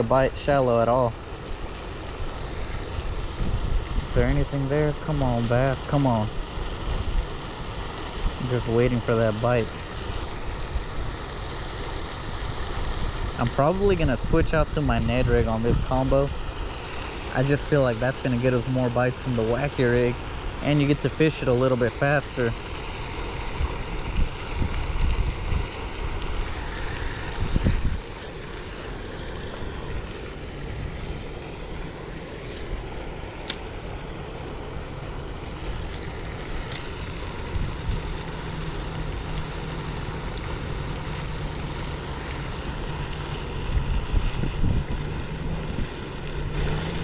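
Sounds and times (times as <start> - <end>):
wind buffeting microphone: 2.0 - 11.5, 12.1 - 16.8, 23.2 - 28.2, 29.2 - 47.0.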